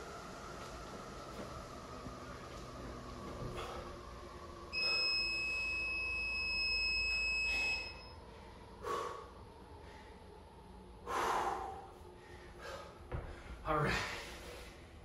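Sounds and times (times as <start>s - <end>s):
heavy breath: 3.4s - 4.0s, 7.5s - 10.4s, 11.0s - 14.8s
long timer beep: 4.7s - 8.2s.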